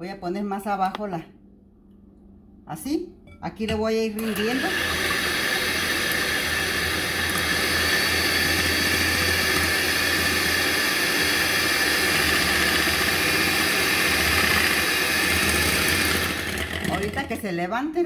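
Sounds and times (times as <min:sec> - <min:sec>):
electric hand mixer whine: 0:04.2 - 0:17.5.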